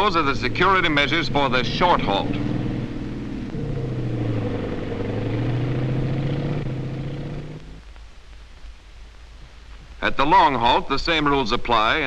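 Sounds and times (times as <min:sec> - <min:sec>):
tank engine running: 0:00.0 - 0:07.8
faint low hum: 0:00.0 - 0:12.0.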